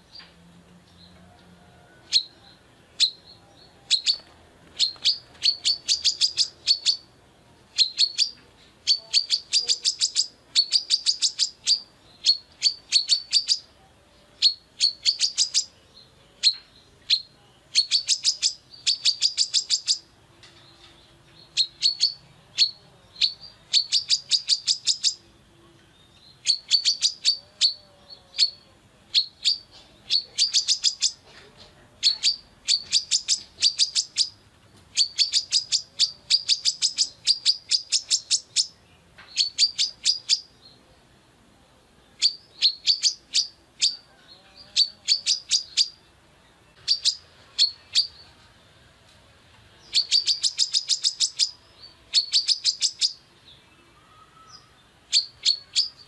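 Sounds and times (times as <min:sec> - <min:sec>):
bird chirping: 0:00.0 - 0:41.0, 0:41.6 - 0:48.8, 0:49.7 - 0:56.0.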